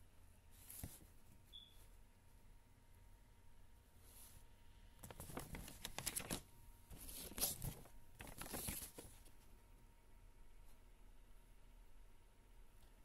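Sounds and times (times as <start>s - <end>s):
glossy paper booklet rustling: 0.5s - 1.4s, 5.0s - 9.5s.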